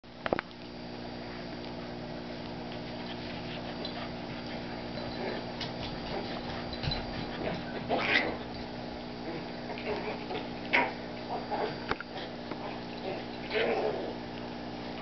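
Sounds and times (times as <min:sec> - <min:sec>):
steady low hum: 0:00.1 - 0:15.0
dogs scuffling: 0:02.6 - 0:08.8.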